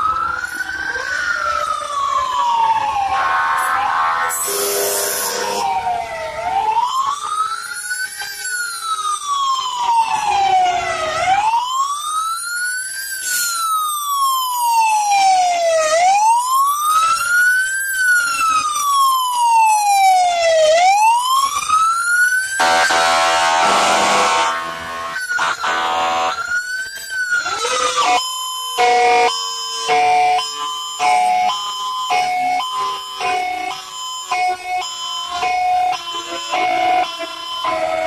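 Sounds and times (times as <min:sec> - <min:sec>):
fire truck siren wailing: 0:00.0 - 0:38.0
steady horn blast: 0:03.4 - 0:05.6.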